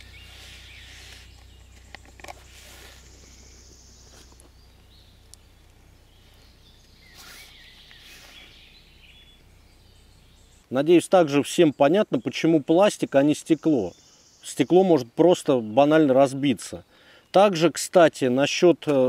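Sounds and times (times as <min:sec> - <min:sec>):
steady low hum: 0:00.0 - 0:10.8
distant bird chirps: 0:00.0 - 0:19.0.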